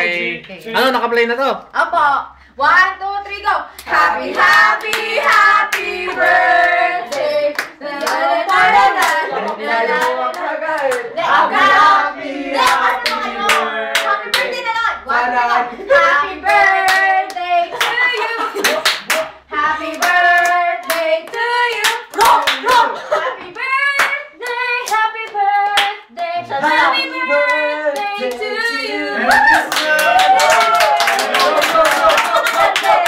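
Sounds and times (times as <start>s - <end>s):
group singing a birthday song: 0.0s - 0.5s, 3.6s - 30.2s, 31.0s - 33.0s
people clapping in time: 16.9s - 22.9s, 29.3s - 33.0s.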